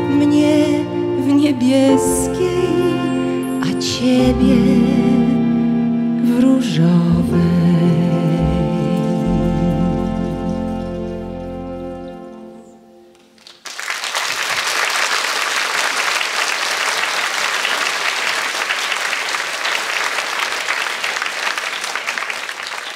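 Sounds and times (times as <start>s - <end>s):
double bass: 0.0s - 13.1s
audience applause: 13.2s - 22.9s.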